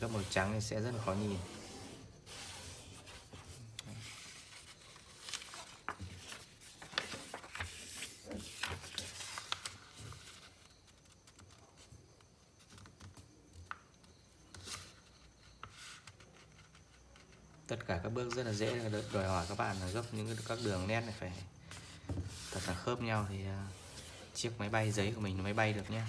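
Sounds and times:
fingers rubbing paper fold: 0:00.0 - 0:11.6, 0:18.5 - 0:21.1
paper crackling and rustling: 0:02.4 - 0:11.8.

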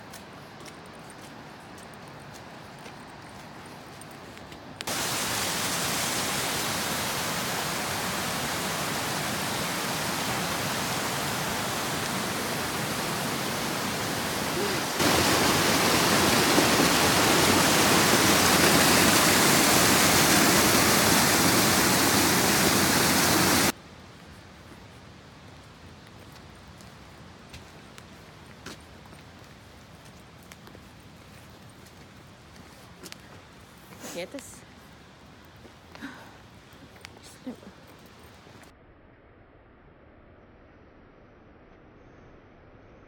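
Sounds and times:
waterfall rushing: 0:04.9 - 0:23.8.

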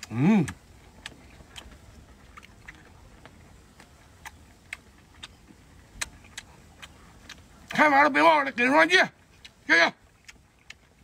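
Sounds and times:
man chewing with wet smacks: 0:00.0 - 0:08.2, 0:09.1 - 0:11.0.

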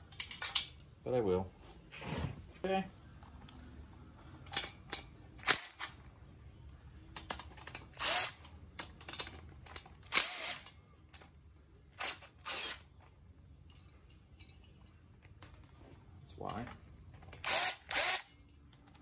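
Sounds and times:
cordless ratchet whirring: 0:12.0 - 0:12.9, 0:17.3 - 0:18.4.

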